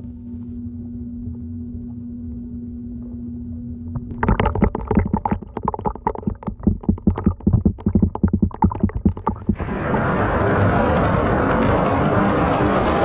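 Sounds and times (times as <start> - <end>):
steady low hum: 0.0 - 12.6
bubbling liquid gurgling: 4.0 - 10.6.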